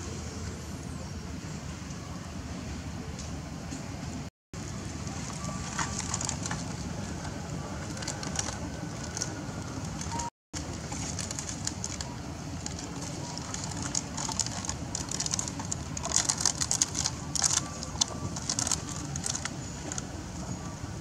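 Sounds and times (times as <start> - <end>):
low outdoor background: 0.0 - 21.0
wrapper crinkling: 5.2 - 7.2, 7.8 - 20.0.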